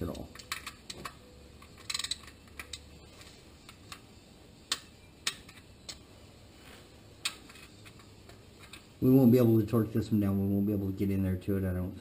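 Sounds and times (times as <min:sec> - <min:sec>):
ratchet clicks: 0:00.1 - 0:02.9.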